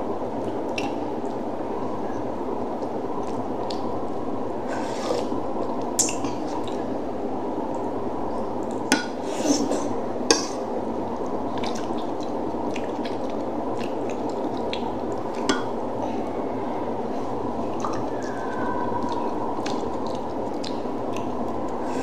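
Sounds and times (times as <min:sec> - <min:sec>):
steady background noise: 0:00.0 - 0:22.0
wet chewing and lip smacks: 0:19.0 - 0:21.4.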